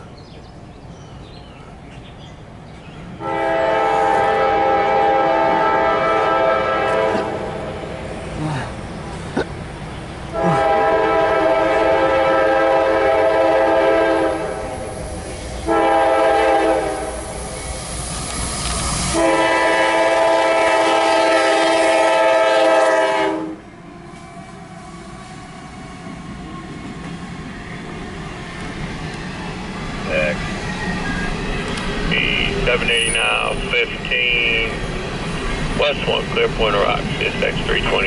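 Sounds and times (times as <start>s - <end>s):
locomotive rumbling past: 0.0s - 38.0s
locomotive air horn blasts: 3.2s - 7.7s, 10.3s - 14.9s, 15.7s - 17.3s, 19.1s - 23.7s.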